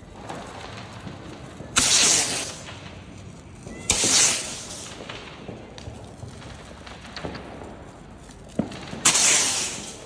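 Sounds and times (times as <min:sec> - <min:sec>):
firework tube shots: 0:00.0 - 0:10.0.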